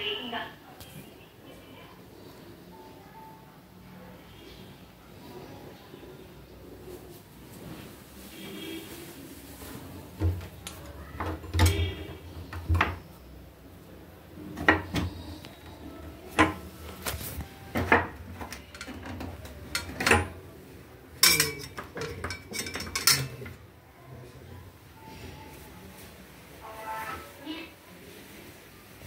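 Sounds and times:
kitchen objects clattering: 9.6 - 13.0, 16.2 - 20.6, 21.2 - 23.7.

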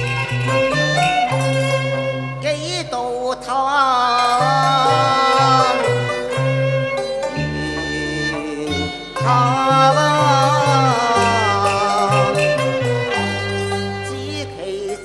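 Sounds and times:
bowed strings melody with vibrato: 0.0 - 15.0
low bass notes: 4.4 - 14.9.

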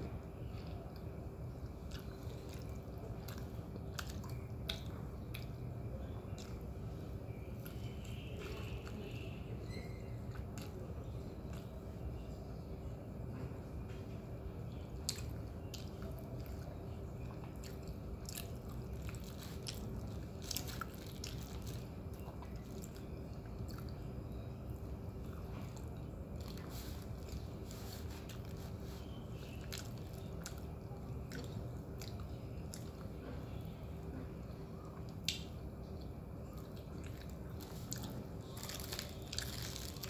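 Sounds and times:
faint steady hum: 0.0 - 40.0
person chewing crispy bread: 0.4 - 5.7, 15.0 - 33.7, 34.9 - 40.0.

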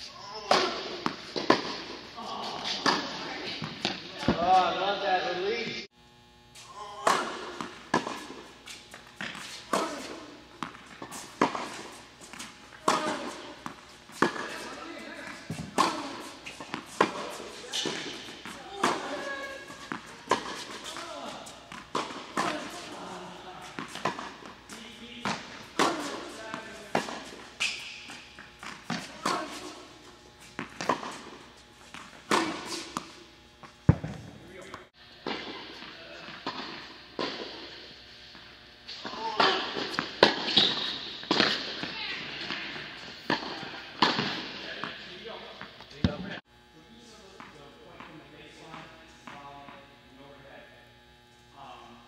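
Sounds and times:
tennis ball bouncing: 0.4 - 2.0, 2.6 - 4.6, 7.0 - 35.6, 39.2 - 46.4
racket striking tennis ball: 0.4 - 4.6, 7.0 - 37.8, 39.0 - 46.4
ball bouncing: 33.9 - 35.4.

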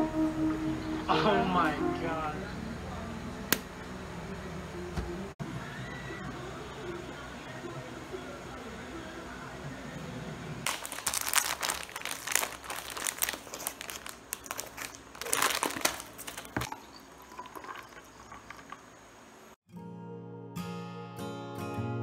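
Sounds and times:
plastic packet crinkling: 10.7 - 16.7.

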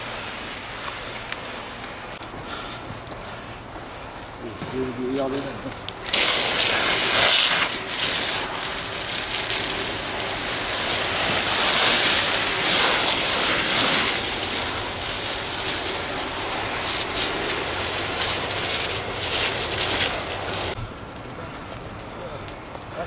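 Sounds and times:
hose nozzle spraying water: 6.0 - 20.8.

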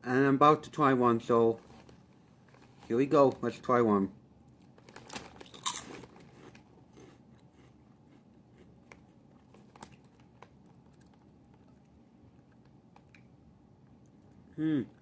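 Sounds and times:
crunching bite of snack: 4.9 - 13.3
chewing: 5.5 - 15.0.

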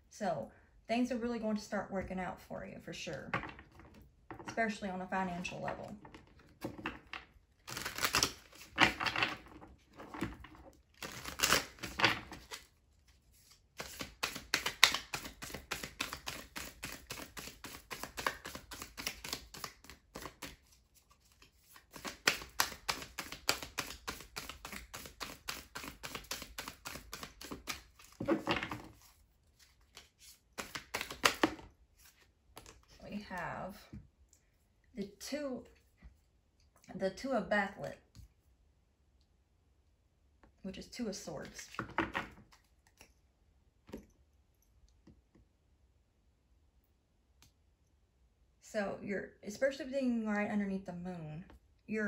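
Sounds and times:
cards being shuffled: 7.6 - 9.4, 10.9 - 33.0.

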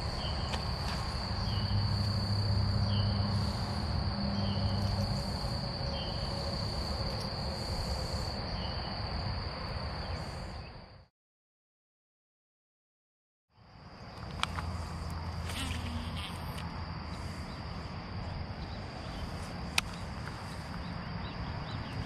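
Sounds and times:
high-pitched insect drone: 0.0 - 10.8, 14.2 - 22.0.

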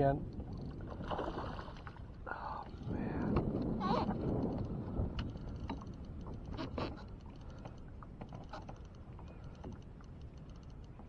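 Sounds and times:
fishing gear clicks and knocks: 3.3 - 11.0.

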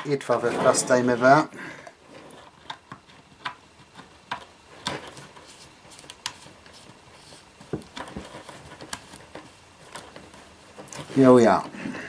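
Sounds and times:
light metal scraping: 0.0 - 2.5.

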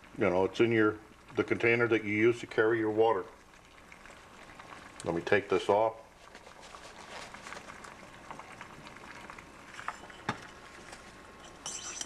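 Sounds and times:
water bubbling at a boil: 0.0 - 12.0.

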